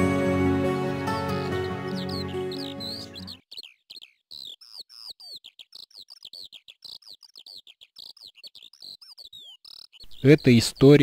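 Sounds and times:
background music: 0.0 - 3.4
falcon shrill calls: 1.2 - 3.4.

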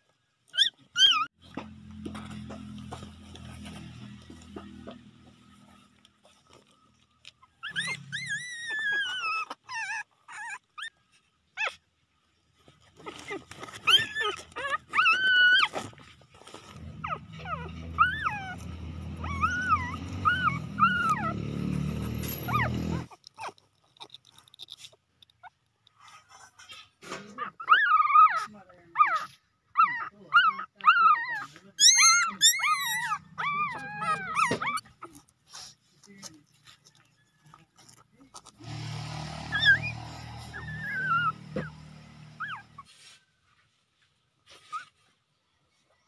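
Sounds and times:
puppies whining and squealing: 0.4 - 43.3, 44.4 - 45.2.

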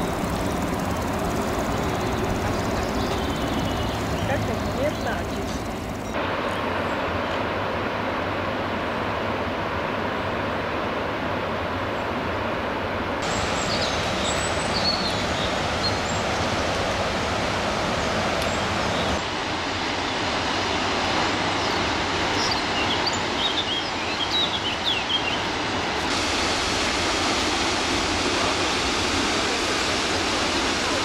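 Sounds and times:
waterfall rushing: 13.2 - 31.0.

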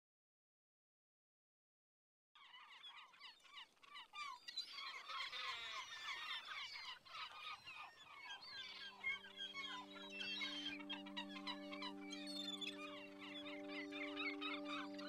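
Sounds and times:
flock of birds chirping: 2.4 - 15.0
music: 8.5 - 15.0.

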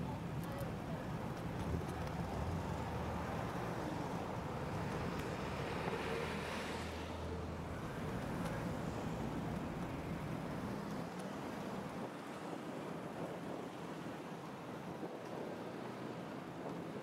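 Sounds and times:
cars passing: 1.5 - 12.4.

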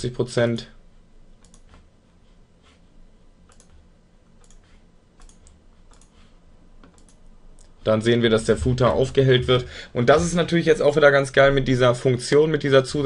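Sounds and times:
computer mouse and keyboard clicks: 1.4 - 1.9, 3.4 - 7.7.

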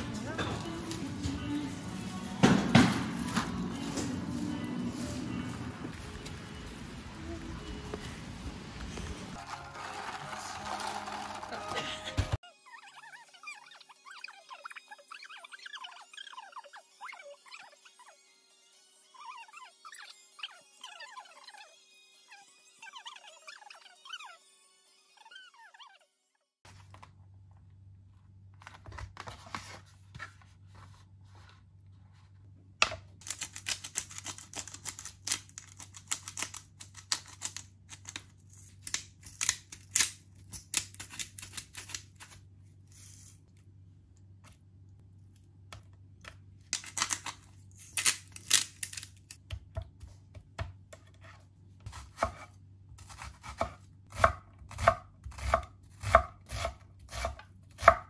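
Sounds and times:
pepper grinder grating: 9.4 - 12.0, 33.2 - 43.5, 46.7 - 49.4.

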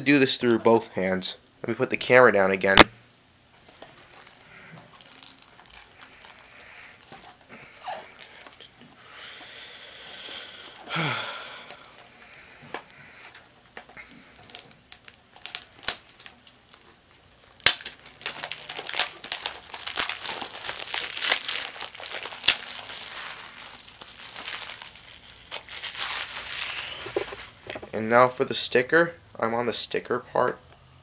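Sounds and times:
packaging torn and crinkled: 3.8 - 7.4, 13.8 - 27.7
sharp crack: 17.6 - 22.8.

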